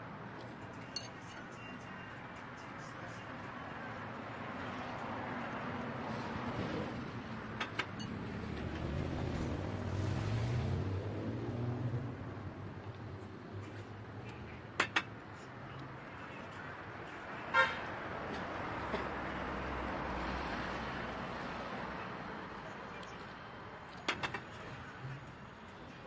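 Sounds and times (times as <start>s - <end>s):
vehicle passing: 3.7s - 14.2s, 16.6s - 23.9s
vehicle horn toot: 17.5s - 17.9s.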